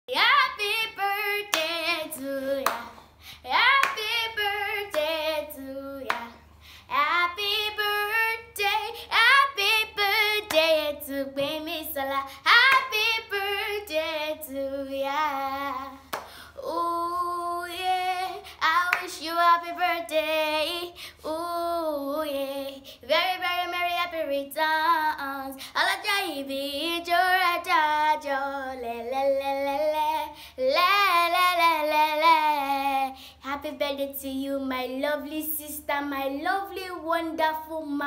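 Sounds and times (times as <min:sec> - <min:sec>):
girl singing: 0:00.1 - 0:38.0
hand claps: 0:02.6 - 0:02.9, 0:03.7 - 0:04.1, 0:06.1 - 0:06.4, 0:12.7 - 0:13.0, 0:16.1 - 0:16.4.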